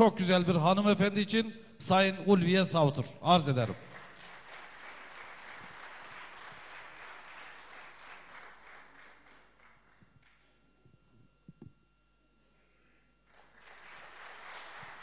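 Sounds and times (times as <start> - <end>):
audience applauding: 3.8 - 10.6, 13.3 - 15.0.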